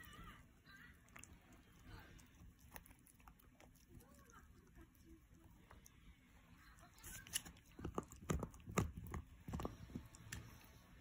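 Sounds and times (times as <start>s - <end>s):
dog gnawing chew bone: 1.0s - 5.8s, 7.0s - 10.7s.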